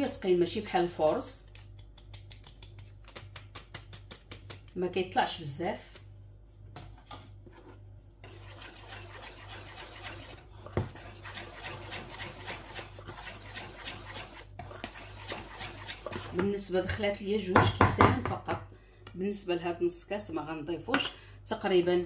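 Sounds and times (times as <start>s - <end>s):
whisk scraping metal bowl: 8.2s - 16.7s.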